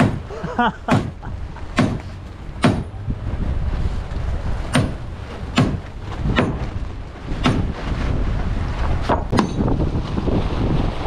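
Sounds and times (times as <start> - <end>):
wind rumbling on microphone: 0.0 - 11.0
hammer knocking on wood: 1.8 - 2.9, 5.6 - 6.6.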